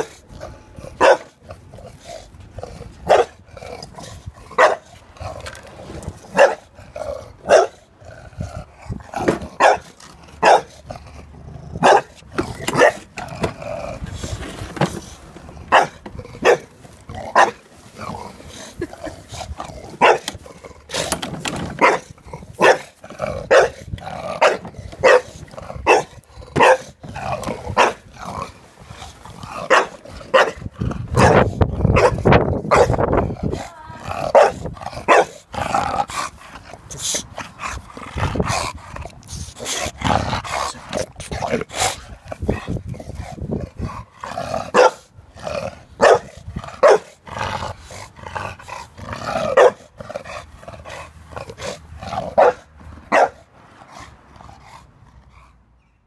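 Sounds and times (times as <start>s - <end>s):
dog growling: 0.0s - 14.4s, 15.5s - 21.2s, 21.9s - 52.6s
dog barking: 1.0s - 1.3s, 3.1s - 3.3s, 4.6s - 4.9s, 6.3s - 6.6s, 7.5s - 7.8s, 9.6s - 10.7s, 11.8s - 12.1s, 15.7s - 16.6s, 20.0s - 20.3s, 21.8s - 22.0s, 22.6s - 22.9s, 23.5s - 23.8s, 24.4s - 25.3s, 25.9s - 26.9s, 27.8s - 28.0s, 29.7s - 30.6s, 31.2s - 31.4s, 32.0s - 33.0s, 34.3s - 35.4s, 44.7s - 45.1s, 46.0s - 47.1s, 49.6s - 49.8s, 52.4s - 53.4s.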